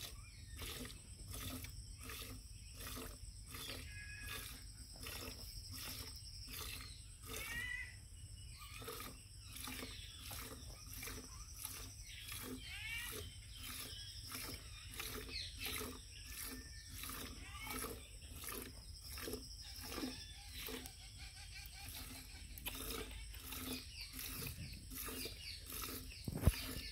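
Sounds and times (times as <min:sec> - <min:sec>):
milk squirting into metal can: 0:00.0 - 0:26.9.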